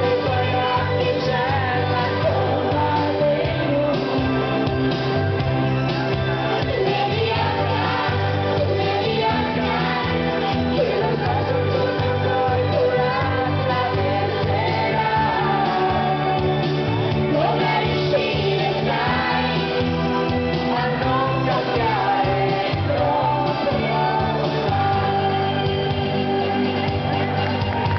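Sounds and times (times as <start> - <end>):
woman singing into a microphone: 0.0 - 4.6, 6.6 - 16.4
amplified pop music accompaniment: 0.0 - 27.9.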